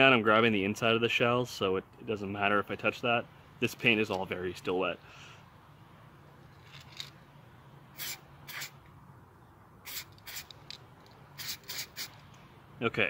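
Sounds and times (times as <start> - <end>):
spray can hissing bursts: 7.9 - 8.8, 9.8 - 10.6, 11.3 - 12.2.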